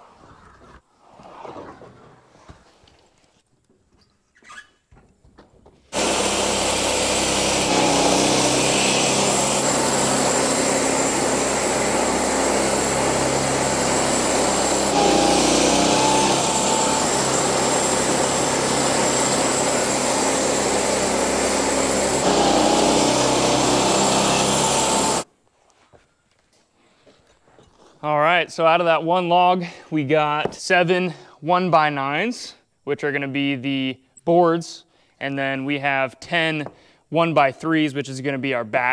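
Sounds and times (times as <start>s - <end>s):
band blade sawing log: 6.0s - 25.2s
sawmill engine droning: 6.0s - 25.2s.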